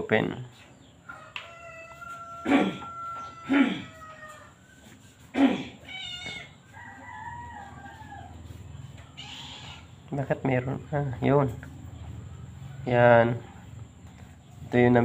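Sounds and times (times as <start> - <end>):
animal crying loudly: 1.8 - 4.6, 5.2 - 6.7, 9.2 - 10.0
animal wavering call: 1.8 - 6.6.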